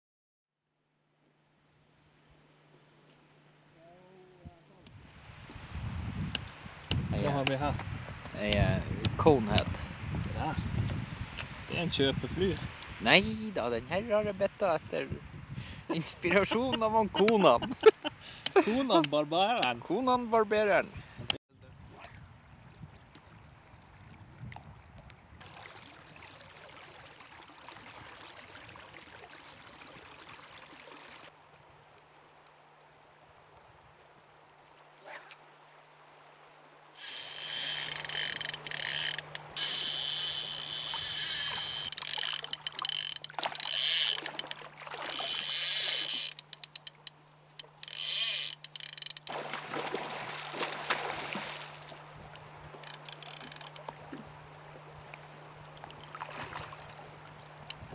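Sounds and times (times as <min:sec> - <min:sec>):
river flow hissing: 0:36.6 - 0:57.9
fishing reel drag ratcheting: 0:37.0 - 0:49.3, 0:52.8 - 0:53.8.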